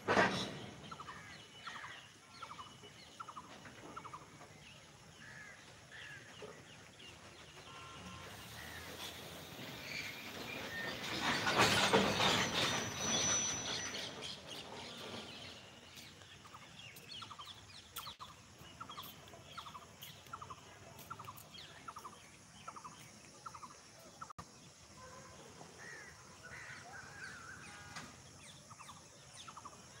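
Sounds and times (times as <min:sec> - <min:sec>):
wagons rattling chirps: 0:00.0 - 0:24.4
train wagons rushing past: 0:02.7 - 0:16.8.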